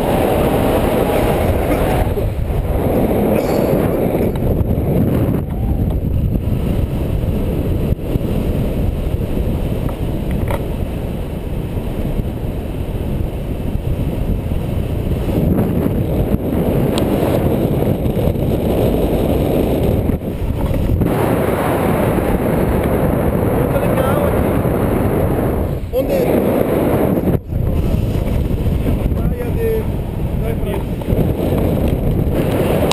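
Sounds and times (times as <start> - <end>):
wind buffeting microphone: 0.0 - 32.9.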